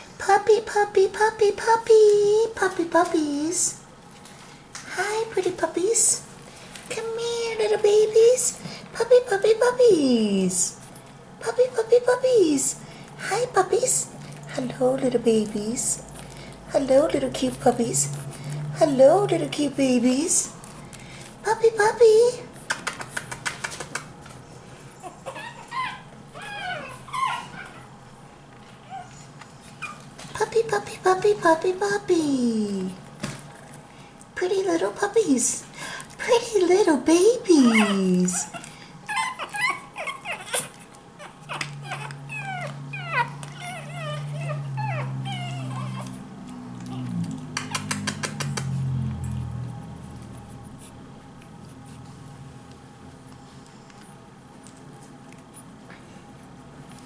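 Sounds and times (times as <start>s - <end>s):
quick run of clicks: 22.7s - 24.1s, 47.6s - 48.8s
puppies whimpering: 24.8s - 28.1s, 28.7s - 30.2s, 37.5s - 48.5s.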